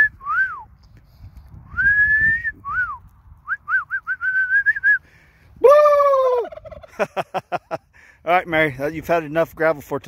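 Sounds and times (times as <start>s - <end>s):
person whistling: 0.0s - 0.7s, 1.7s - 5.1s.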